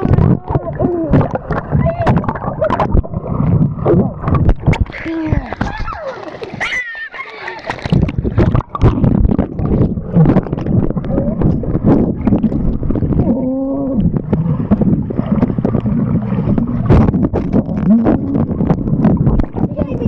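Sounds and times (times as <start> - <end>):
muffled voice underwater: 0.0 - 3.1, 4.9 - 7.7, 9.6 - 12.1, 13.0 - 20.0
underwater churning and bubbles: 0.0 - 20.0.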